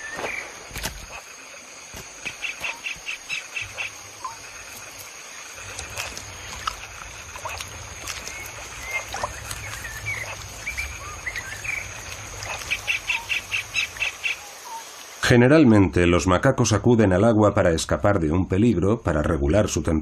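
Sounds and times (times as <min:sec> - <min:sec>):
rapid repeated bird calls: 0:00.0 - 0:15.1
high insect whine: 0:00.0 - 0:16.5
birds chirping and whistling: 0:08.2 - 0:11.9.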